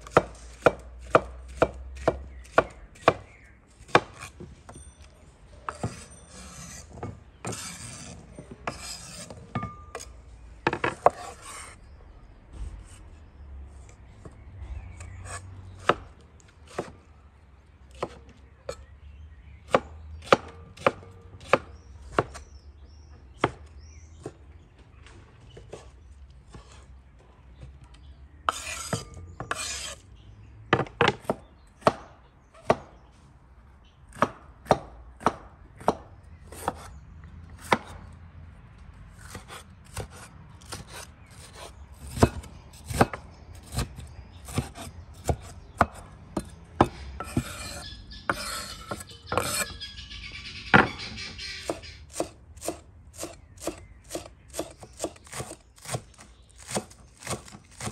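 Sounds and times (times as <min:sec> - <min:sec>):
knife chopping on wooden board: 0:00.0 - 0:04.3, 0:17.9 - 0:18.2, 0:19.7 - 0:22.4, 0:34.1 - 0:36.9, 0:39.2 - 0:49.8, 0:51.6 - 0:57.9
knife scraping board: 0:05.7 - 0:10.1, 0:10.8 - 0:11.8, 0:25.6 - 0:27.0, 0:28.5 - 0:30.0, 0:39.2 - 0:49.9.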